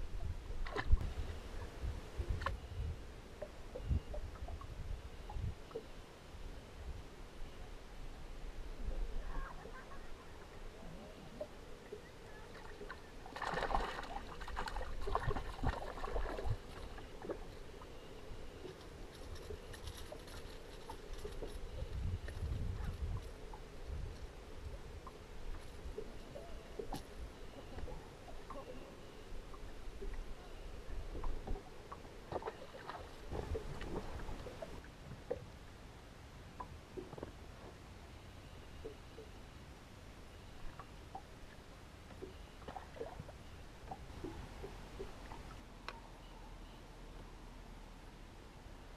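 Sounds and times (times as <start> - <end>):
fish thrashing water splashes: 12.6 - 17.3.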